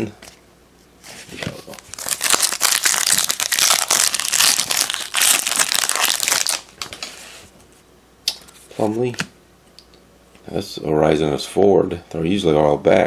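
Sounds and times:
foil wrapper crinkling: 1.6s - 6.7s
foil being torn open: 1.8s - 6.7s.

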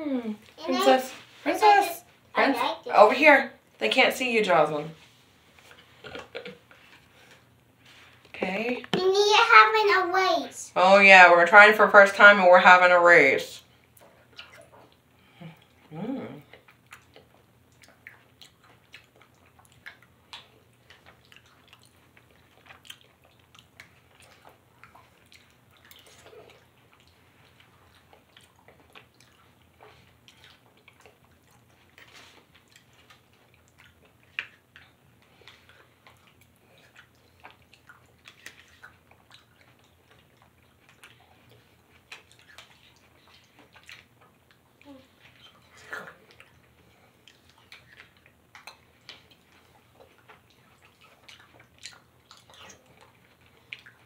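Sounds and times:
chewing and lip smacks: 13.8s - 54.0s.

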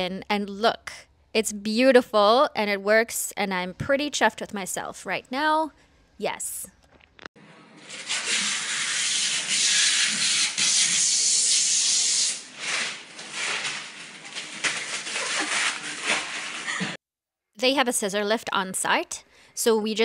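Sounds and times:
plastic film peeling and crinkling: 7.8s - 16.9s.

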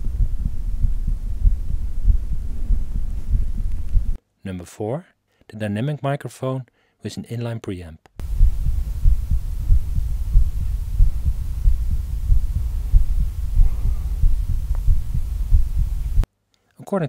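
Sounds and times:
heartbeat thuds: 0.0s - 4.2s, 8.2s - 16.2s
steady low rumble: 0.0s - 4.2s, 8.2s - 16.2s.

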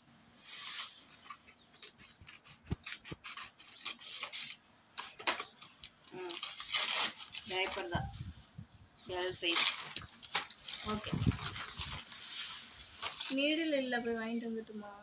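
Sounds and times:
paper crinkling and rustling: 0.5s - 8.1s, 9.2s - 13.8s
scissors snipping paper: 1.1s - 7.9s.

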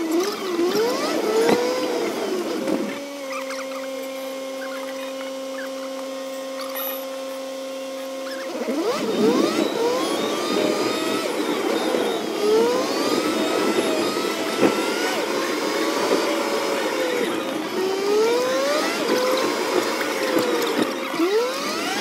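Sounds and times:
sped-up car engine: 0.0s - 22.0s.

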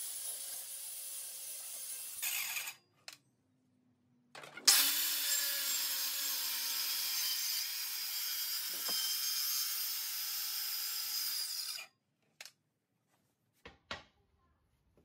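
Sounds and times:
circular saw cutting wood: 0.0s - 2.8s, 4.7s - 11.9s.

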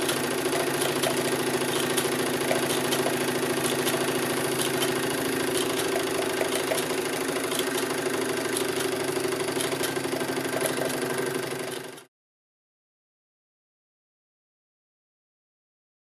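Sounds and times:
sharp mechanical ticks: 0.0s - 12.1s
toy steam engine running: 0.0s - 12.1s.

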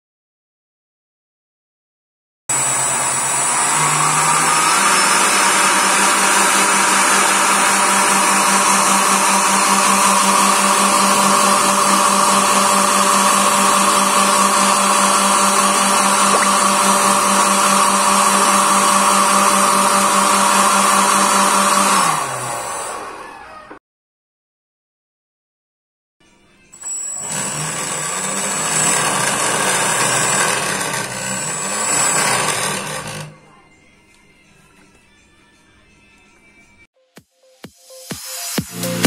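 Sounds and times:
electric fan whining: 2.6s - 23.6s.

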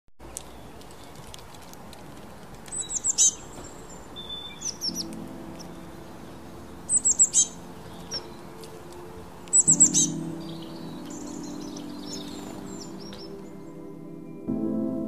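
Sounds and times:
songbird chirping: 0.2s - 15.0s
faint low drone: 4.7s - 15.0s.

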